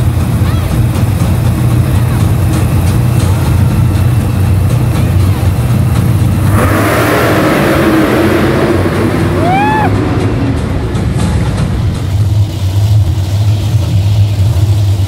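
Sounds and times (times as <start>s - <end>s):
monster truck engines rumbling: 0.0s - 15.0s.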